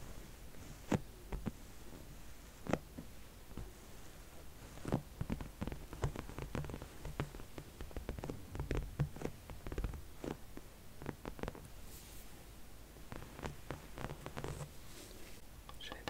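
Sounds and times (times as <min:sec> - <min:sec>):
nails tapping and scratching: 0:04.6 - 0:11.8, 0:13.1 - 0:14.7.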